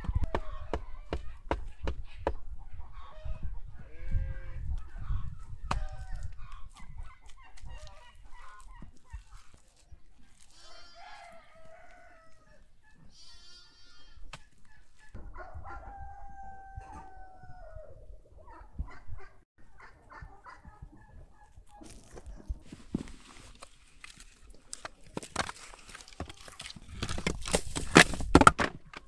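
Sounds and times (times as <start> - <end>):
chickens clucking: 0.0 - 13.2, 14.2 - 23.6
rooster crowing: 10.6 - 12.6, 15.3 - 18.0.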